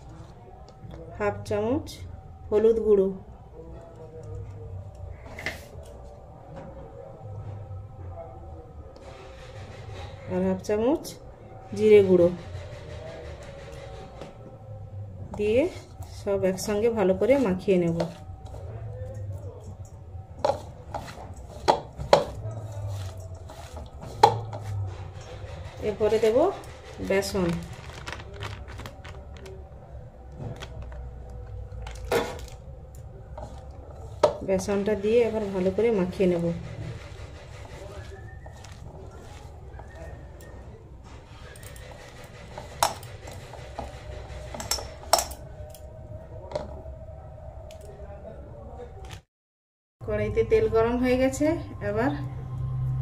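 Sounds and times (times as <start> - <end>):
food mixed by hand rustling: 20.4 - 45.2
steel bowl clinking: 44.5 - 45.8.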